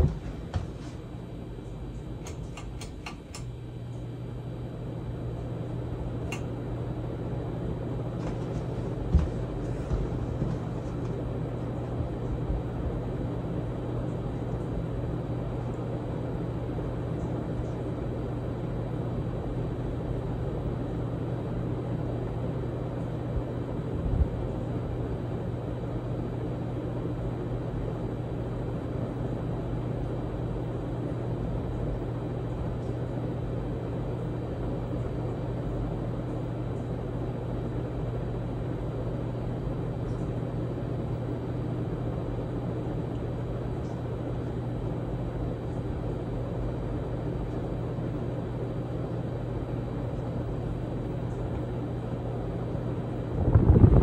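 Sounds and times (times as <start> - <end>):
rush of air from fan blades: 0.0 - 1.3, 50.9 - 54.0
ceiling fan motor hum: 0.0 - 54.0.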